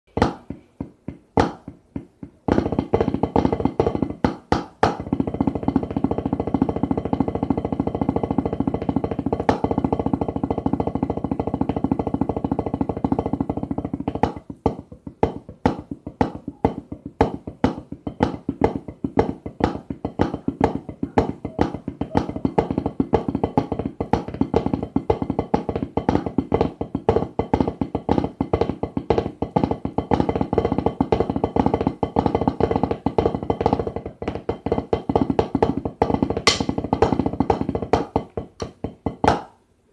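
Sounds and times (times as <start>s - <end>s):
snare drum strokes: 34.7s - 38.2s.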